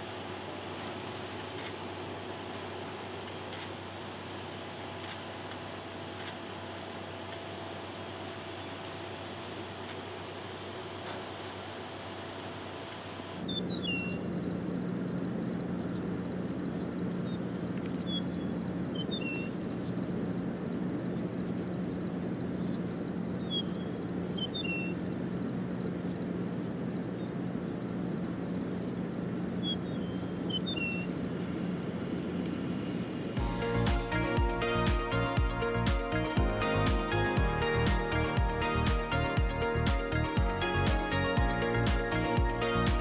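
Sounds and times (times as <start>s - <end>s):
high pulsing buzz: 10.6s - 43.0s.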